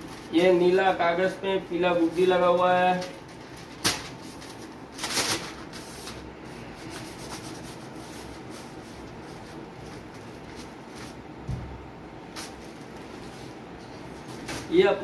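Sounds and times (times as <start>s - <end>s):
paper kites rustling: 2.0s - 11.2s.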